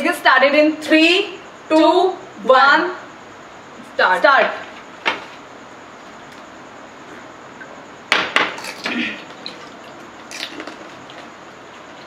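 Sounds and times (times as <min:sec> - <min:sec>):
crisp shells crunching: 0:08.6 - 0:11.3.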